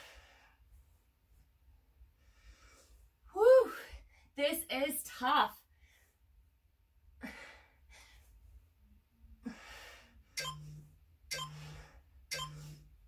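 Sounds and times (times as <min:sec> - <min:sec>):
timer beeps: 0:10.4 - 0:13.0.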